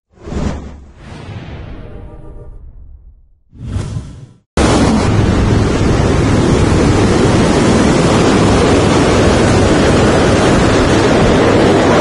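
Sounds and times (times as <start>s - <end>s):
wind buffeting microphone: 4.6s - 12.0s.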